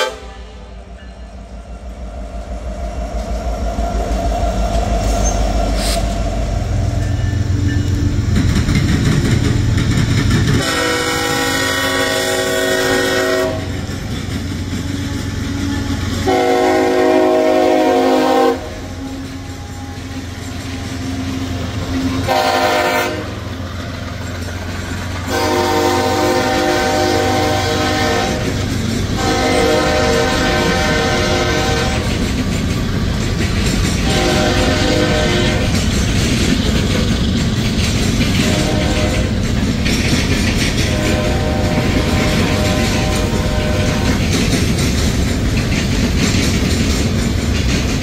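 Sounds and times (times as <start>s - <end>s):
locomotive horn blasts: 0.0s - 0.8s, 10.6s - 13.8s, 14.9s - 20.0s, 21.8s - 23.5s, 25.2s - 28.6s, 29.2s - 32.2s, 34.0s - 35.8s, 38.4s - 39.4s, 40.9s - 44.2s
freight train rumbling past: 0.0s - 48.0s.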